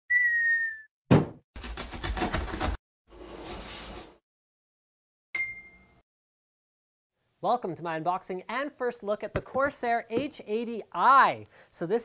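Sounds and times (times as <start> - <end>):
sharp thud: 1.1 - 1.4.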